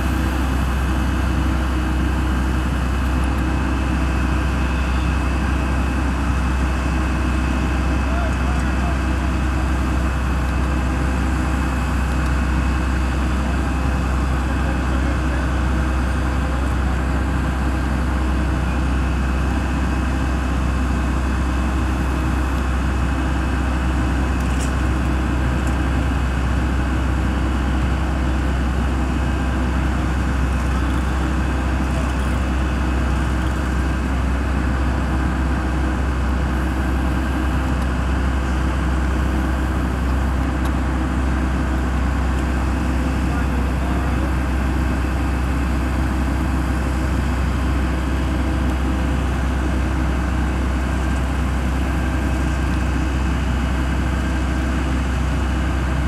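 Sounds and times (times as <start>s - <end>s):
idling vehicle engines drone: 0.0s - 56.0s
road traffic noise: 0.0s - 56.0s.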